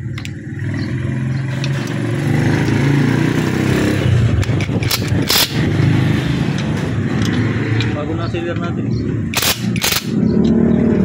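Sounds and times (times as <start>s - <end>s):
loud rattling noise: 0.5s - 8.0s, 9.3s - 10.2s.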